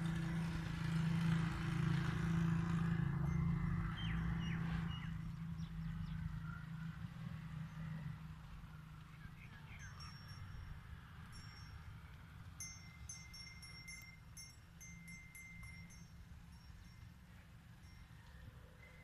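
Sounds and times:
small metal bells jingling: 0:09.6 - 0:19.0.

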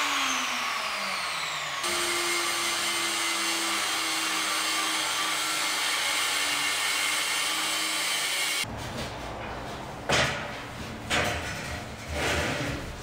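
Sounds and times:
angle grinder cutting metal: 0:00.0 - 0:08.7.

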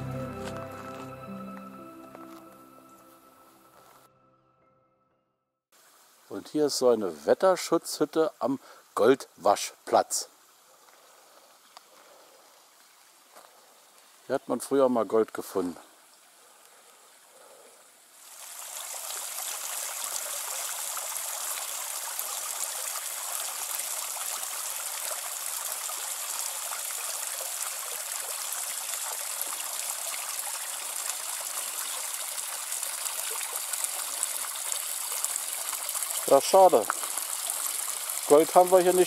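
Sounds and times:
stream flowing: 0:15.6 - 0:39.0.

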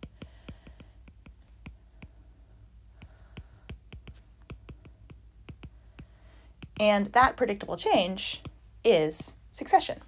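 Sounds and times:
stylus tapping on glass screen: 0:00.0 - 0:02.2, 0:03.0 - 0:07.0.

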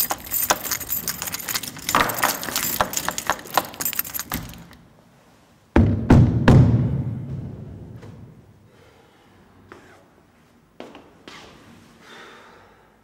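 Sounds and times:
metallic jangling and clinking: 0:00.0 - 0:04.9
heavy booming hits: 0:05.8 - 0:08.0.

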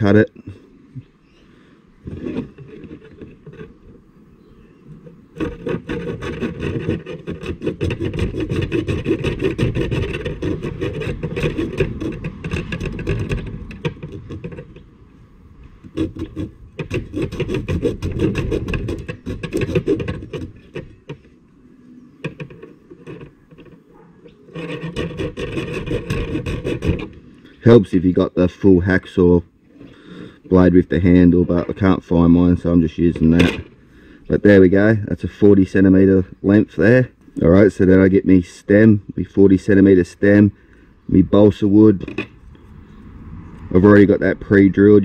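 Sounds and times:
hacksaw blade sawing wood: 0:02.1 - 0:03.9, 0:05.3 - 0:14.9, 0:15.8 - 0:21.2, 0:22.2 - 0:27.3.

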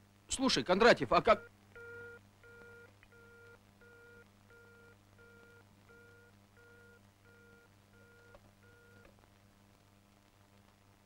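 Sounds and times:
telephone busy signal beeps: 0:01.8 - 0:09.1.

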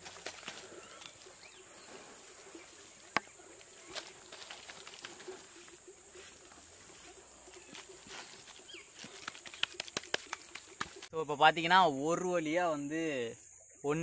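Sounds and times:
hands patting wet clay: 0:00.0 - 0:01.5, 0:02.1 - 0:11.1.

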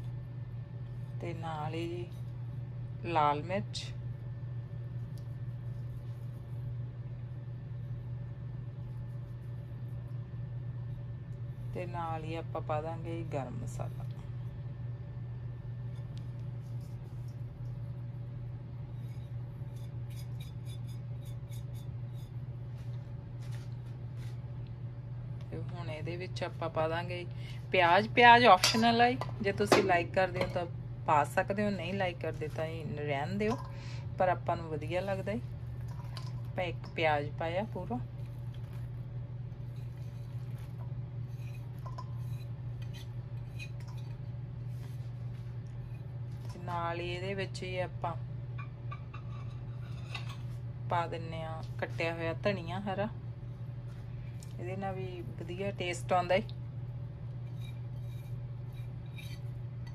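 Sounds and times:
steady low hum: 0:00.0 - 0:59.9
utensils clinking against dishes: 0:28.5 - 0:30.6.

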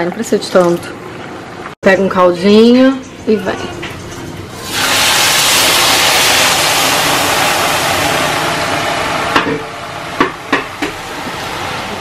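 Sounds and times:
rice sizzling as broth poured: 0:04.6 - 0:10.0.

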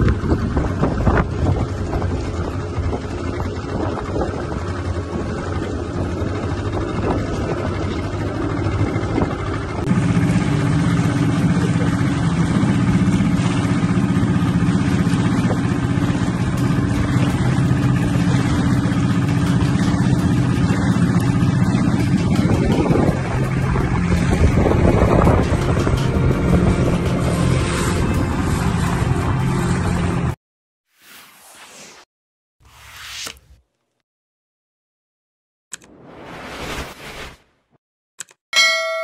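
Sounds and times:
outboard motor running: 0:00.0 - 0:30.4
wind: 0:00.0 - 0:30.4, 0:38.2 - 0:39.0
water noise: 0:00.0 - 0:32.1.

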